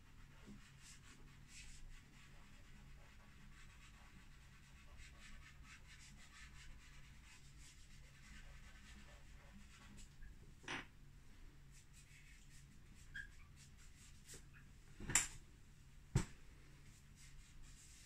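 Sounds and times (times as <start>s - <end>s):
chalk pastel scratching on canvas: 0.1s - 10.2s, 11.7s - 14.6s, 16.9s - 18.0s.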